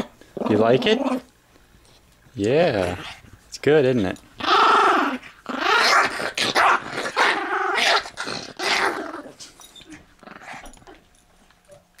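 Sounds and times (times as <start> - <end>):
dog growling: 0.0 - 1.3, 2.6 - 3.3, 4.4 - 9.5, 10.2 - 10.8.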